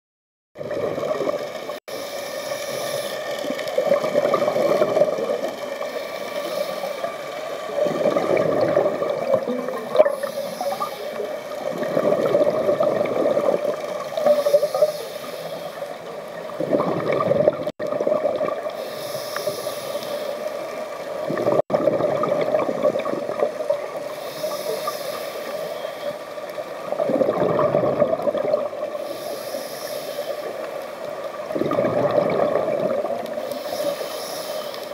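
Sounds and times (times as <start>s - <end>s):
regulator hiss on inhale: 1.8s - 3.7s, 5.5s - 7.7s, 10.1s - 11.6s, 14.1s - 16.2s, 18.7s - 21.0s, 24.0s - 26.9s, 28.9s - 31.1s, 33.3s - 34.9s
bubbling on exhale: 7.8s - 14.9s, 16.6s - 19.7s, 21.3s - 25.1s, 27.0s - 29.2s, 31.5s - 33.8s.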